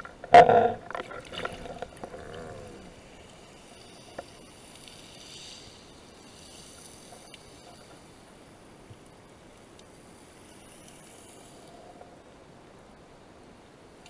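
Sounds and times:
underwater gurgling: 0.0 - 8.4
steady low hiss: 0.0 - 14.0.

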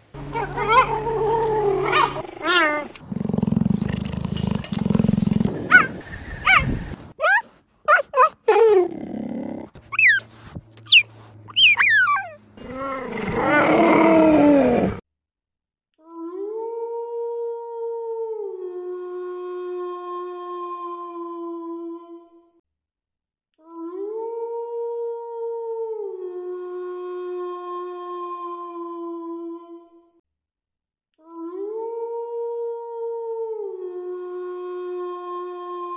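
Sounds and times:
wolf howling: 0.2 - 3.0
cheetah chirping: 9.9 - 12.4.

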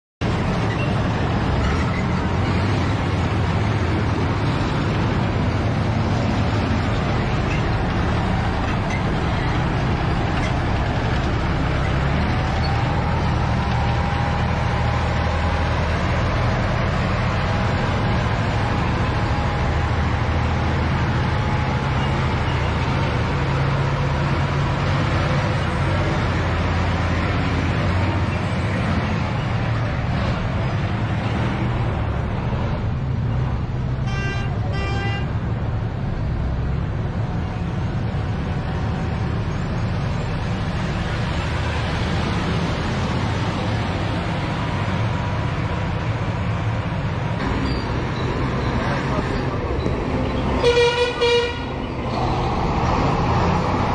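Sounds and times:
heavy vehicles driving past: 0.2 - 53.9
short horn toots: 50.6 - 51.7.

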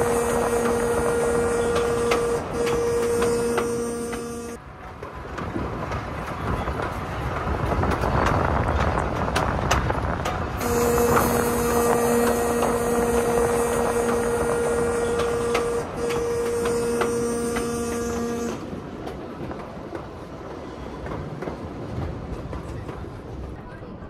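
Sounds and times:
locomotive horn blast: 0.0 - 4.6, 10.6 - 18.8
train running on rails: 0.0 - 24.0.

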